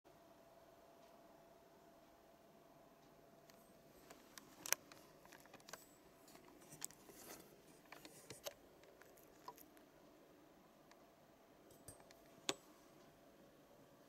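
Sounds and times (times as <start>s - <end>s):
camcorder handling clicks and rustles: 4.0s - 9.7s.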